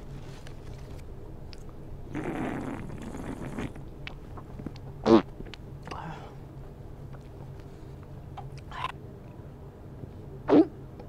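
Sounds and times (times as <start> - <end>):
ventilation hum: 0.0 - 11.0
wet slurping mouth noises: 2.1 - 3.8.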